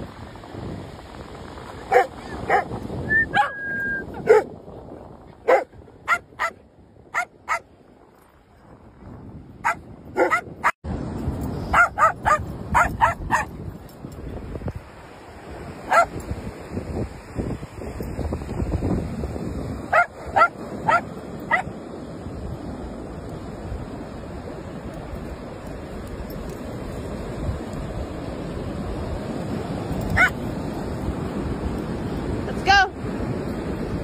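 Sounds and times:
wind and surf hissing: 0.0s - 34.0s
dogs barking: 1.9s - 2.7s, 3.3s - 3.6s, 4.2s - 4.5s, 5.4s - 7.7s, 9.6s - 10.8s, 11.7s - 13.5s, 15.9s - 16.2s, 19.9s - 21.7s, 30.1s - 30.4s.

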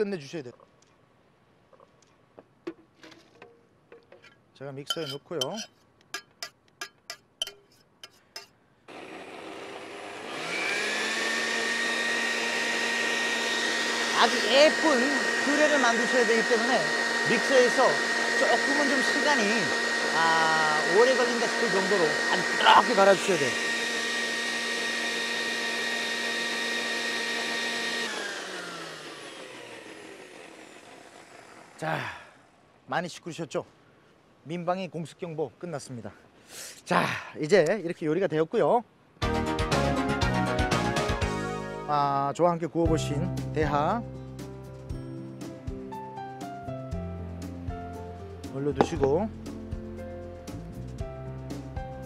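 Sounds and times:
metal cup clinking on jug: 4.0s - 8.5s
blender motor whine: 8.9s - 32.6s.

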